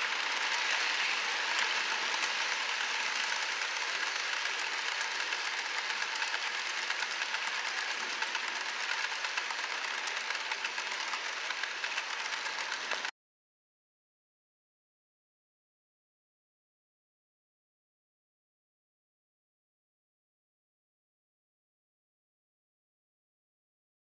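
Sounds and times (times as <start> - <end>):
model train wheels rattling: 0.0 - 13.1.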